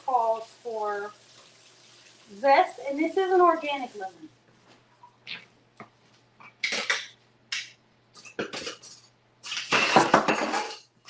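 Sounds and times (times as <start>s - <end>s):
kitchen clattering and scraping: 6.5s - 11.0s.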